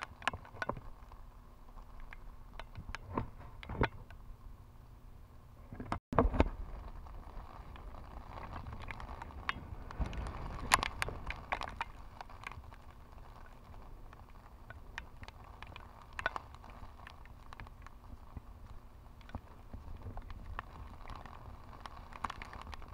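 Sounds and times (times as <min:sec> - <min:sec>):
wind rumble on microphone: 0:05.7 - 0:22.9
raindrops ticking on camera: 0:06.2 - 0:22.9.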